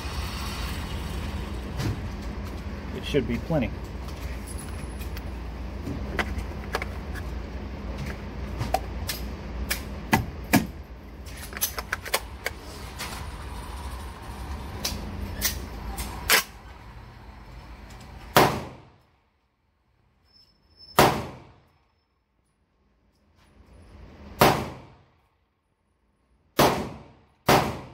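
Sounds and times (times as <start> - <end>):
steady low hum: 0.0 - 19.8.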